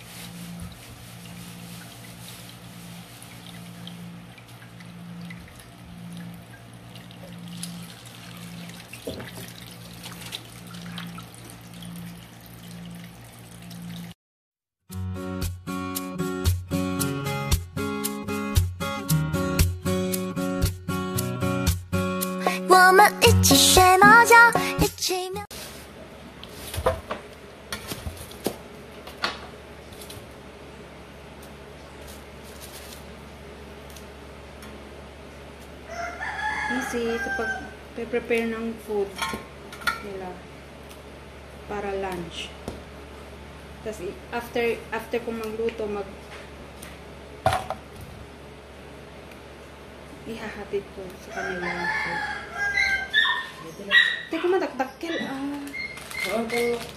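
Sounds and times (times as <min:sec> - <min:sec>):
low pulsing hum: 0:00.0 - 0:14.2
water splashes: 0:06.3 - 0:14.2.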